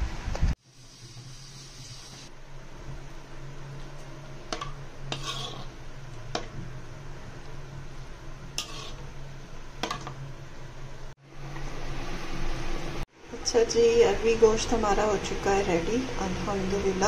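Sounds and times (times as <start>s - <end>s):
metal spatula scraping a wok: 4.6s - 5.9s, 8.6s - 9.2s.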